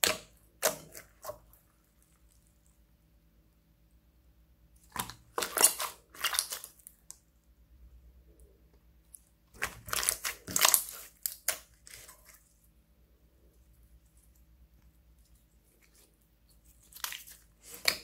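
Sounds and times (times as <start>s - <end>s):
slime popping and crackling: 4.9s - 7.0s, 9.6s - 12.2s.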